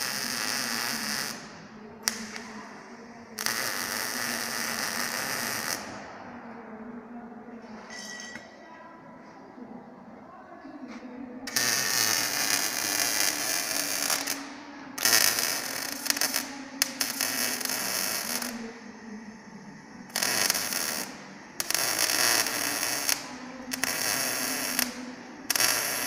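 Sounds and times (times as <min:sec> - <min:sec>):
welding arc crackling: 0:00.0 - 0:02.5, 0:03.4 - 0:06.0, 0:11.5 - 0:18.7, 0:20.1 - 0:26.0
steady low hum: 0:13.3 - 0:26.0.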